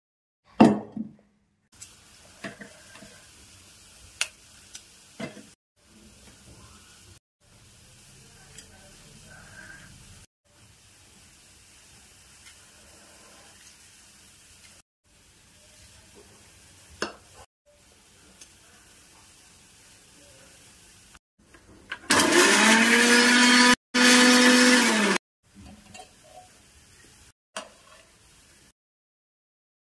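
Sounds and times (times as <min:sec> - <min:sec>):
faint hiss: 0:17.7 - 0:21.2
mixer grinder motor whine: 0:22.1 - 0:25.2.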